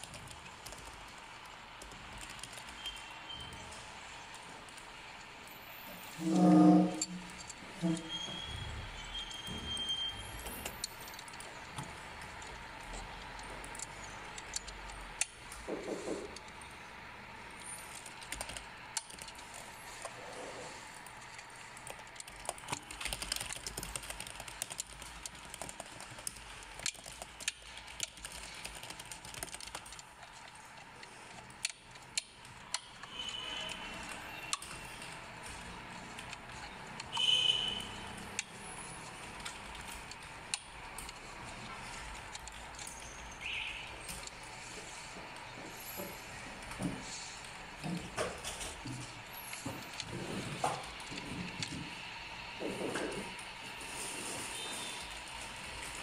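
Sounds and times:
plastic parts clicking and rattling: 17.5 - 45.5.

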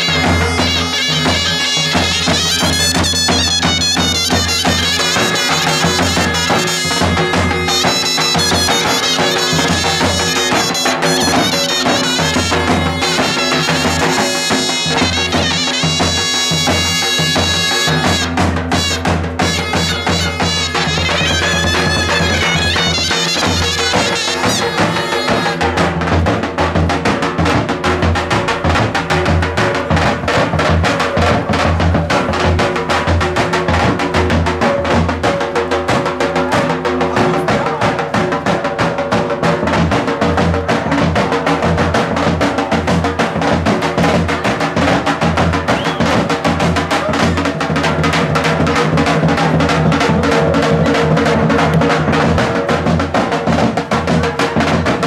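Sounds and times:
held melodic tones: 0.0 - 26.1
driving drum beat: 0.0 - 55.0.

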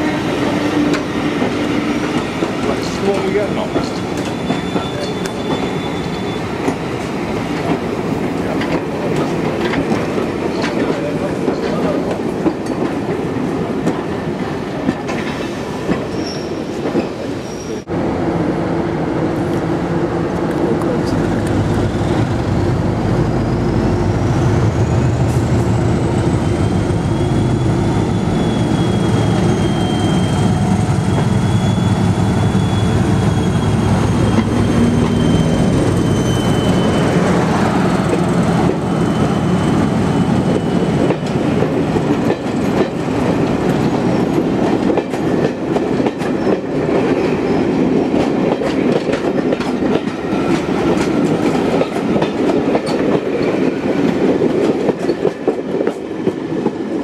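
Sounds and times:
diesel locomotive engine rumble: 17.8 - 47.0.

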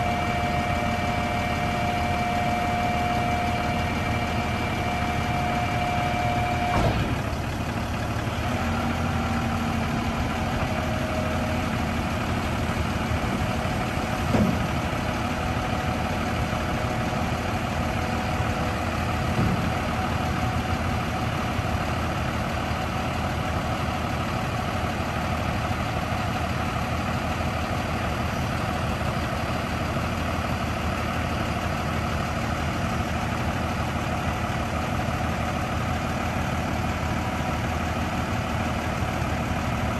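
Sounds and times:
diesel engine idling: 0.0 - 39.9.

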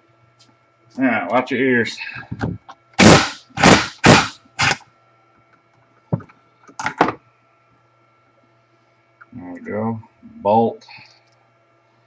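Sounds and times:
impact wrench hammering: 3.0 - 4.8.

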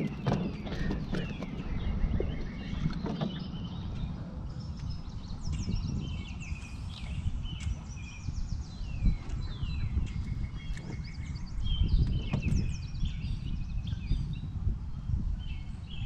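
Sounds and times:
birds singing: 0.0 - 16.0.

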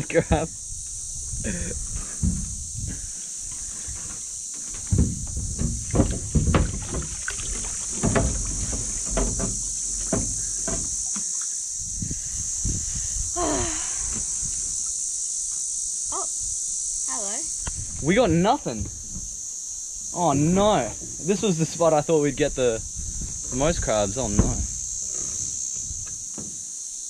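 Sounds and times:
high insect buzz: 0.0 - 27.0
pot frame knocking against hull: 4.8 - 11.3
water splashing and pouring: 4.8 - 11.5.

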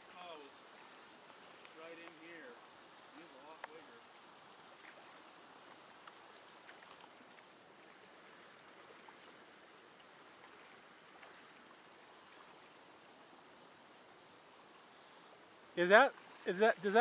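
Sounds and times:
creek running water: 0.0 - 17.0
faint ticks: 5.9 - 7.5.

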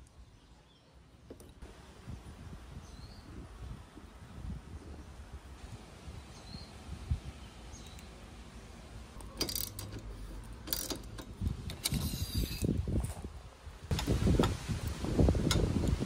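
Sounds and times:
ratchet clicking: 9.2 - 12.7.

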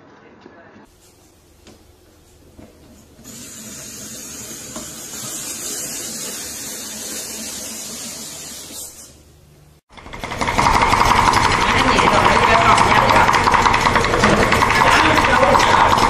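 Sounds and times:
apple peeler blade hissing: 3.2 - 9.2.

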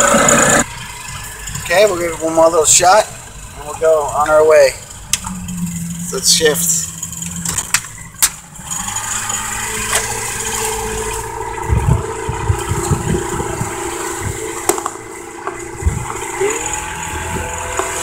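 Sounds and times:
outboard motor running: 0.0 - 18.0
low thumps: 11.2 - 16.4.

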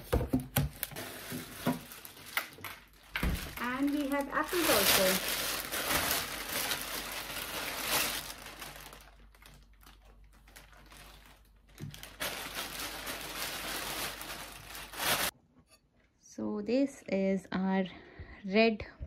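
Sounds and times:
plastic bag crinkling: 0.7 - 15.3.

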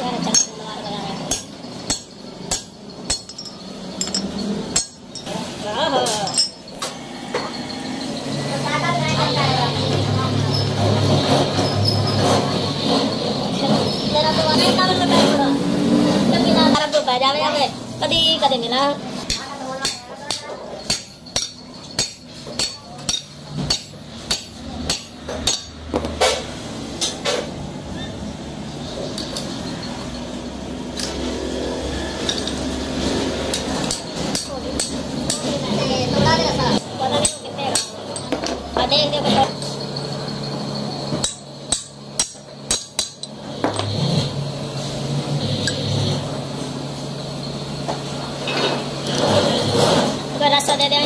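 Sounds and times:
hammer striking metal shaft: 1.3 - 5.3, 19.3 - 27.5, 36.7 - 43.9.

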